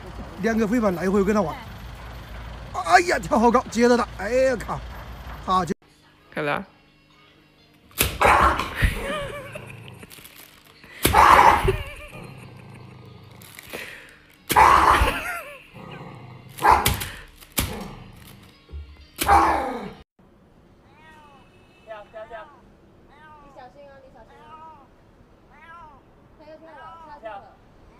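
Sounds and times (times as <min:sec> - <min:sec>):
small dog barking: 0:16.6 - 0:17.0.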